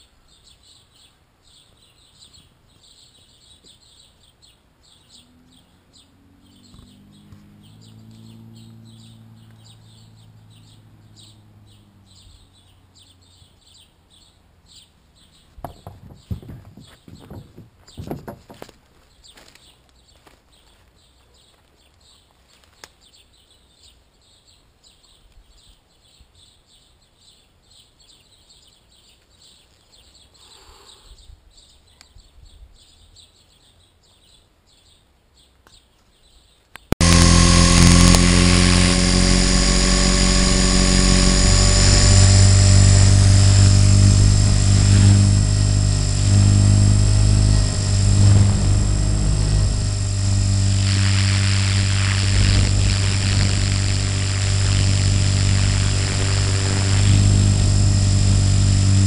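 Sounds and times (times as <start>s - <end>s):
helicopter motor and rotor whine: 37.0s - 59.0s.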